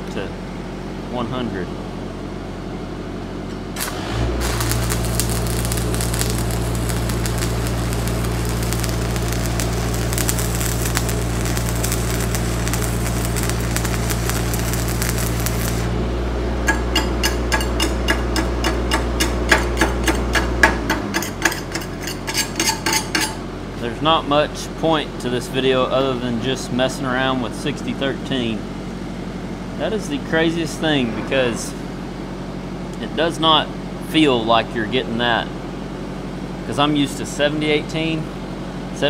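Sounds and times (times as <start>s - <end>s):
welder engine humming: 3.7s - 23.4s
welding arc crackling: 3.8s - 16.0s, 16.6s - 23.2s
sharp metal taps: 16.6s - 23.4s.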